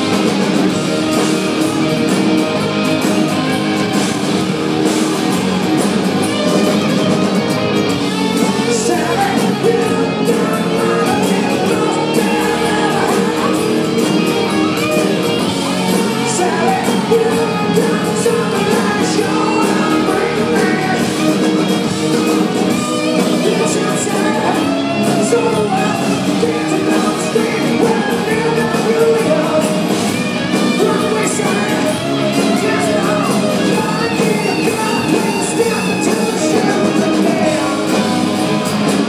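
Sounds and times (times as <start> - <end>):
rock band playing: 0.0 - 39.0
man singing: 8.3 - 14.9, 15.7 - 21.5, 23.0 - 38.4.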